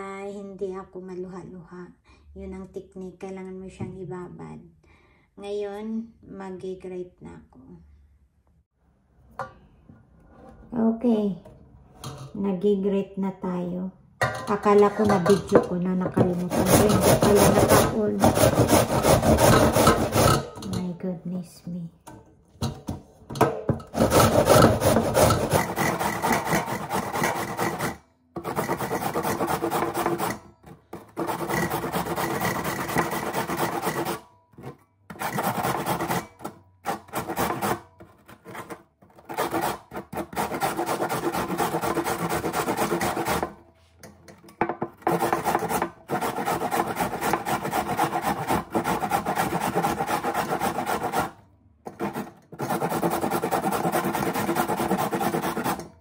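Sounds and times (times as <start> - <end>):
potato rasping on metal grater: 14.8 - 20.9, 23.9 - 43.6, 45.0 - 55.9.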